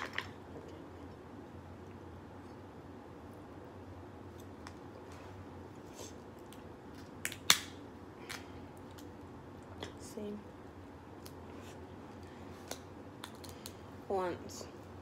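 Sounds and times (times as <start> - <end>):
crab shells cracking: 6.5 - 9.2, 12.7 - 13.8.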